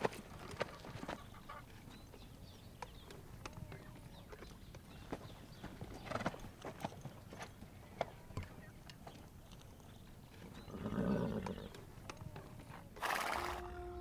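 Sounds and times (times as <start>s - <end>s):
hooves clopping on hard ground: 0.0s - 12.8s
horse noise: 10.6s - 11.8s.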